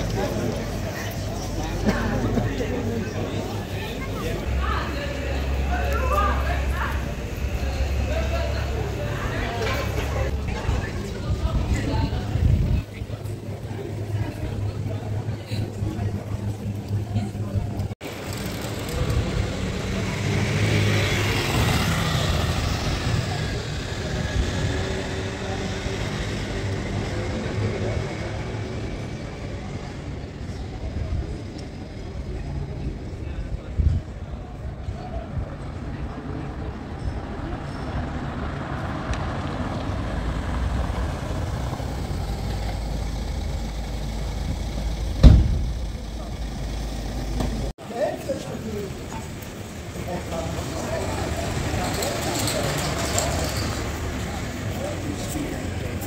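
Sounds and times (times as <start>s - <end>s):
street traffic rumble: 0.0s - 56.0s
van engine idling: 40.8s - 47.7s
van door slamming: 45.1s - 45.8s.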